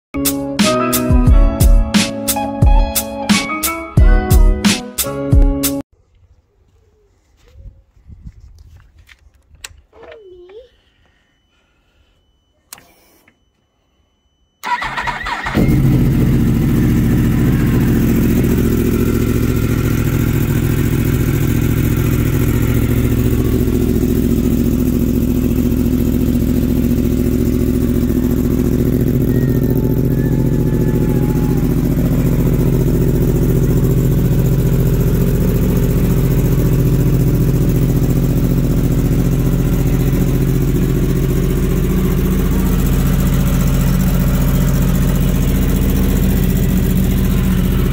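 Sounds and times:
motorcycle engine cranking: 14.6 - 47.9
motorcycle engine idling: 14.6 - 47.9.

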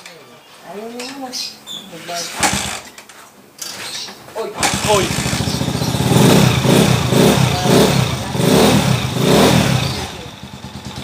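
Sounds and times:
motorcycle engine revving: 2.3 - 2.9, 4.6 - 11.0.

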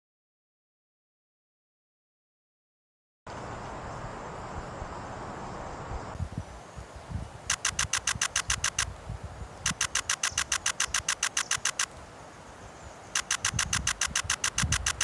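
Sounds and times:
camera shutter clicking in bursts: 7.5 - 8.9, 9.7 - 11.9, 13.2 - 15.0.

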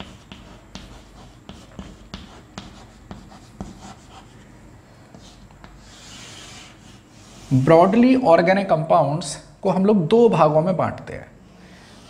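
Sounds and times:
chalk writing on a chalkboard: 0.0 - 4.4, 5.1 - 8.0.

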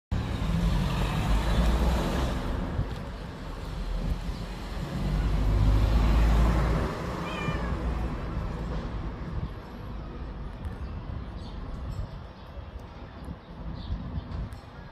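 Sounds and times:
low traffic rumble: 0.1 - 14.9
cat meowing: 7.1 - 8.0.

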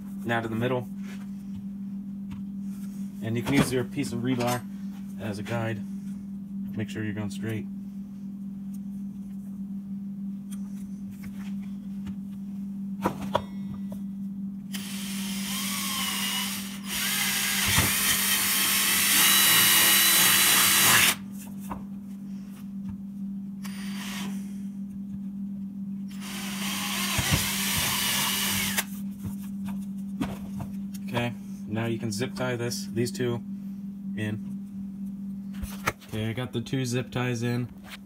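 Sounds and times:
steady low hum: 0.0 - 38.0
power drill boring plastic pipe: 14.7 - 21.2, 26.1 - 28.9.

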